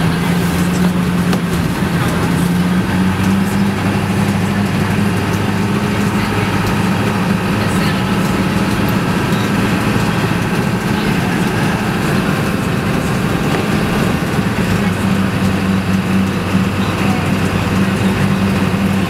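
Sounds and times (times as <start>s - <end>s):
low engine hum: 0.0s - 19.0s
road and wind noise: 0.0s - 19.0s.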